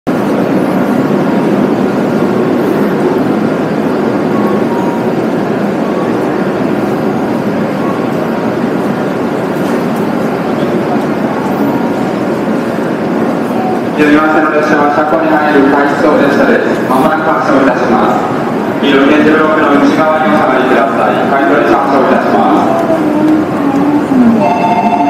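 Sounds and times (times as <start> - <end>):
train rumbling: 0.1 - 25.0.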